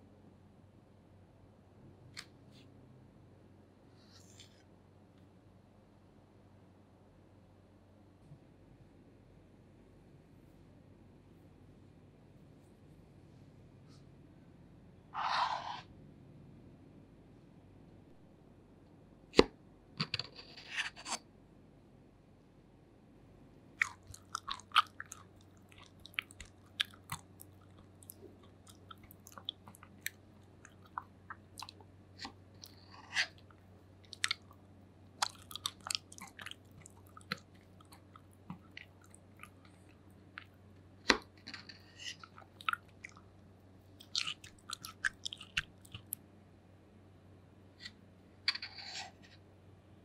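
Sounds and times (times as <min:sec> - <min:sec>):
person chewing: 0:23.8 - 0:34.6, 0:35.2 - 0:46.2
wet mouth noises: 0:23.8 - 0:34.6, 0:35.2 - 0:46.2.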